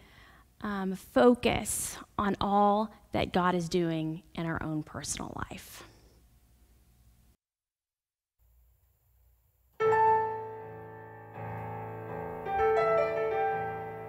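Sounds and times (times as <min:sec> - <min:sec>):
electronic keyboard playing chords: 0:09.8 - 0:14.0.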